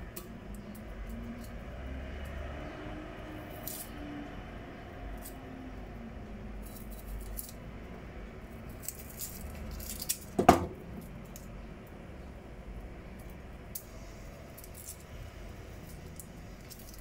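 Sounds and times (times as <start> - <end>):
onion skin crinkling: 8.6 - 11.5
sharp knock: 10.4 - 10.8.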